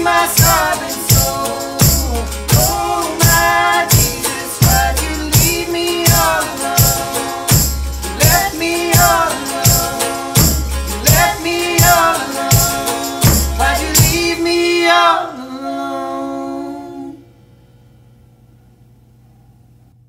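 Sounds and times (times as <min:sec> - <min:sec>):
drum and cymbal hits: 0:00.0 - 0:14.4
guitar: 0:00.0 - 0:17.2
woman singing: 0:08.2 - 0:17.2.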